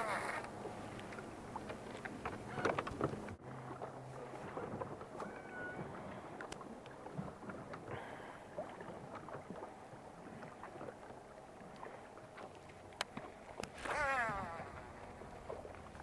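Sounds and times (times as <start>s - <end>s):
waves lapping against boat hull: 0.0s - 16.0s
faint sharp clicks: 6.4s - 7.0s, 12.5s - 14.0s.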